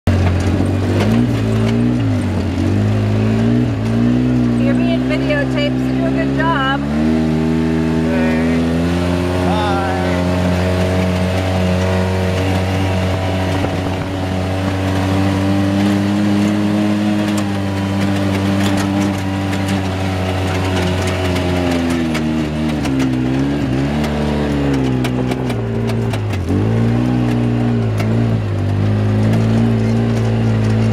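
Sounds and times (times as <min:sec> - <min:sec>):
dune buggy engine running: 0:00.0 - 0:30.9
clicks and rattles: 0:17.2 - 0:30.9.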